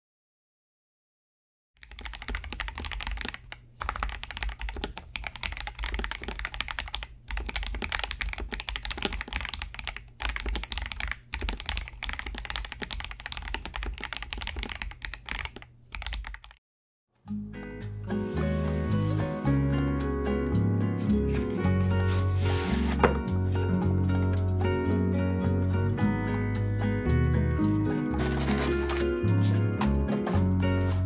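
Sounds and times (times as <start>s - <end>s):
mechanical keyboard typing: 1.8s - 16.6s.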